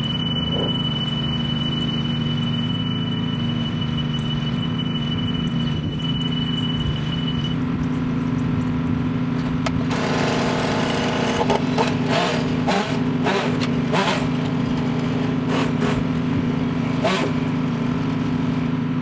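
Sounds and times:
engine humming: 0.0s - 19.0s
chainsaw revving: 9.8s - 18.0s.

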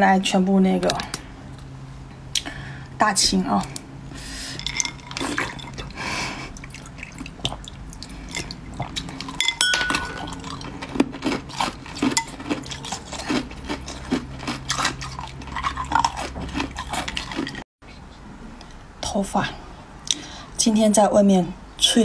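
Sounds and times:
ice clinking against glass bowl: 4.6s - 5.8s, 9.2s - 10.7s
water dripping and trickling: 6.6s - 8.7s.

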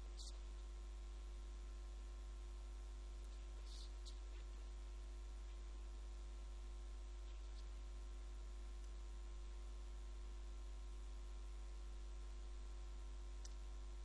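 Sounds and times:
electrical mains hum: 0.0s - 14.0s
faint hiss: 3.2s - 4.4s.

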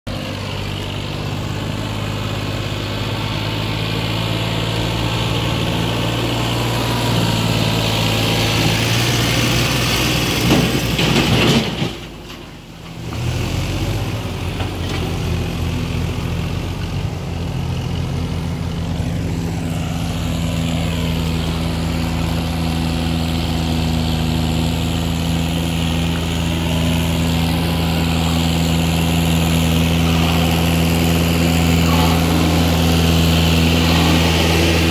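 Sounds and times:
diesel tractor engines running: 0.1s - 34.9s
water churning around wheels: 25.5s - 34.9s.

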